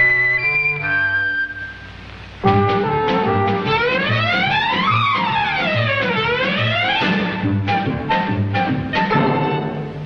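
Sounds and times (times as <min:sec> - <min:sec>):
orchestral cartoon music: 0:02.4 - 0:10.0.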